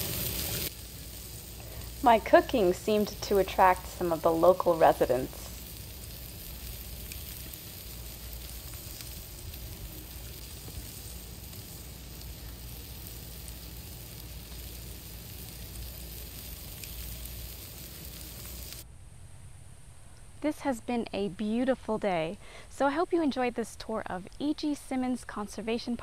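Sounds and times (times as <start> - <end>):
burgers sizzling over campfire: 0.0 - 18.8
fire crackles: 0.0 - 18.8.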